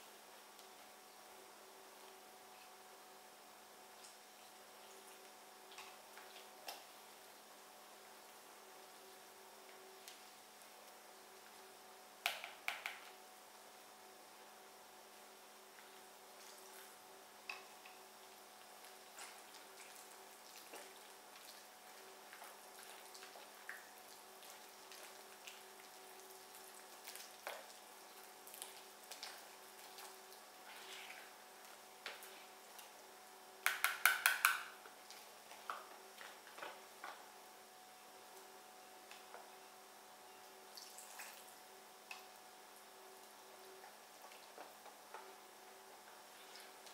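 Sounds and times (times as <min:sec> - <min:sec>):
whisk tapping in plastic bowl: 0:33.6 - 0:34.6.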